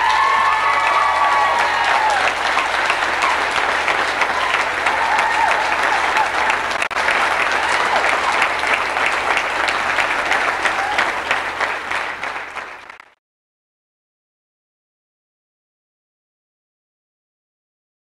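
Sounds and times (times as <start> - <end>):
crowd applauding: 0.0 - 13.2.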